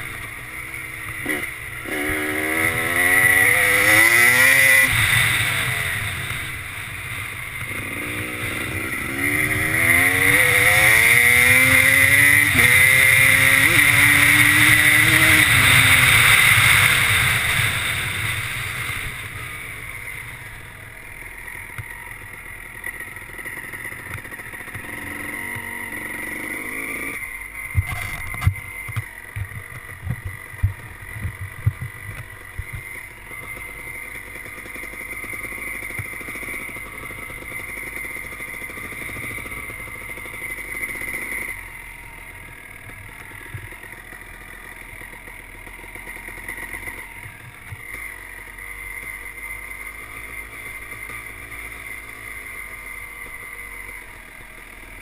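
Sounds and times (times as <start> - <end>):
two-stroke motorcycle engine: 0.0 - 55.0
sharp low thumps: 27.8 - 32.9.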